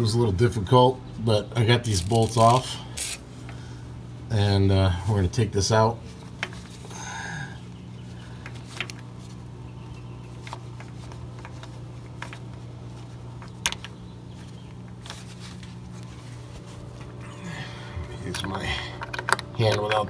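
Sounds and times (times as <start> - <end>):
low hum: 11.2 - 19.9
higher two-tone sound: 17.2 - 19.0.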